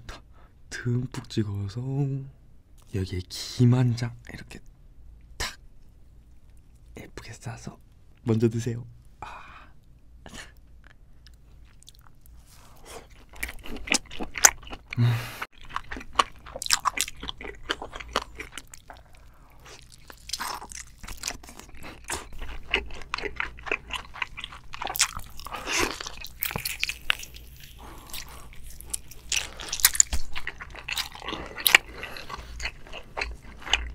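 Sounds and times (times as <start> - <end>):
person chewing crunchy food: 10.9 - 33.9.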